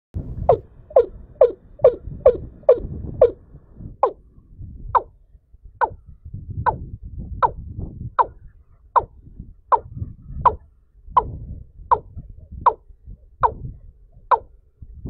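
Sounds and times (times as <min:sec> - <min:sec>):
low rumbling noise: 0:00.2 - 0:15.0
bird call downward-sliding notes: 0:00.3 - 0:04.4, 0:08.2 - 0:09.9, 0:10.5 - 0:12.8, 0:14.2 - 0:14.6.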